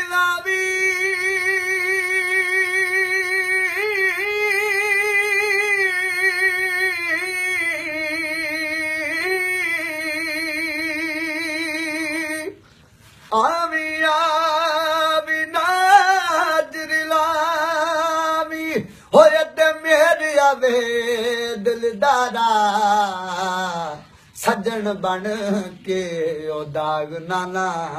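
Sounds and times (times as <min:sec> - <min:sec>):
man singing unaccompanied: 0:00.0 - 0:27.9.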